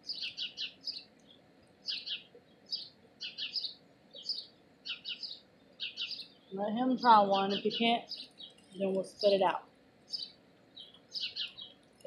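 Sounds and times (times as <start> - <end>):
bird chirping: 0.0 - 12.0.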